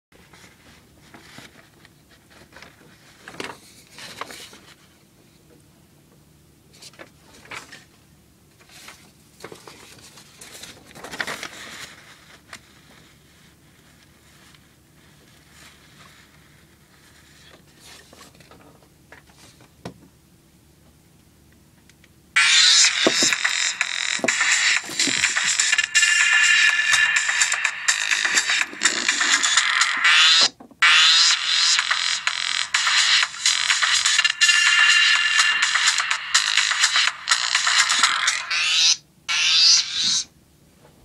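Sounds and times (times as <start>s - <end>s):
rustling and scraping handling noises: 0.2s - 5.0s, 8.6s - 19.8s.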